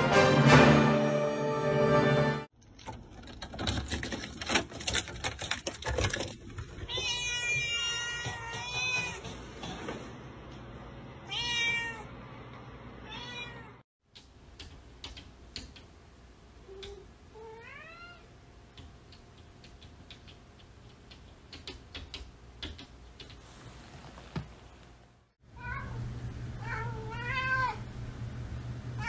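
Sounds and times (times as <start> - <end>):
cat meowing: 6.9 - 9.2, 11.2 - 12.1, 13.0 - 13.8, 26.6 - 27.8.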